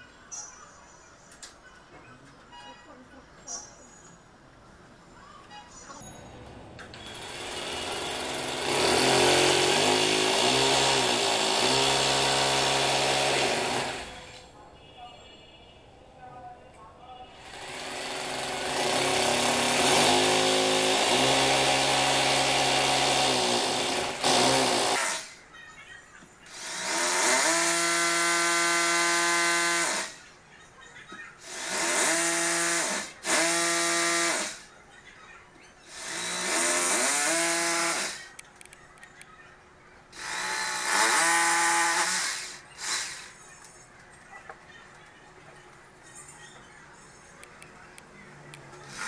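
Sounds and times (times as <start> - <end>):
electric drill whining: 7.0 - 14.4, 17.6 - 25.3, 26.5 - 30.2, 31.4 - 34.6, 35.9 - 38.3, 40.2 - 43.3.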